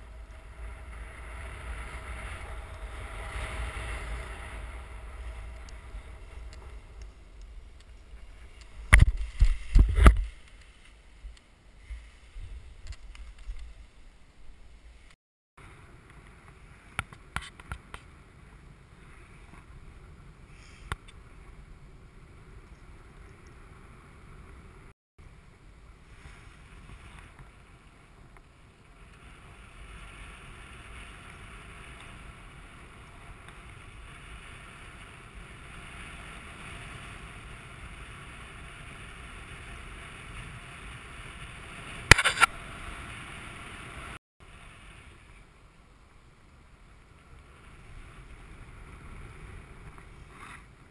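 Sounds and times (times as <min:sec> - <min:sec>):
wind rushing over microphone: 0:00.0 - 0:45.6
loud crackle: 0:40.8 - 0:43.1.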